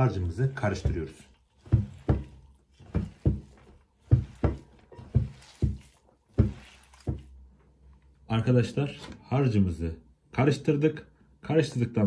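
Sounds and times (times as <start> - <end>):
hands squishing meat mixture: 0.0 - 8.2.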